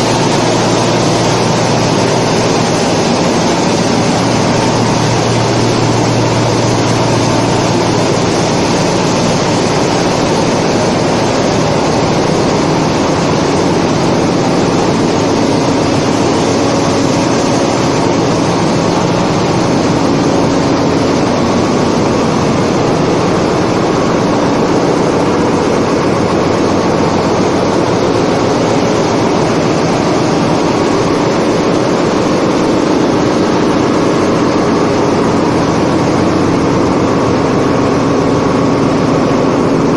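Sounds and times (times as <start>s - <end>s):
engine room machinery noise: 0.0s - 39.9s.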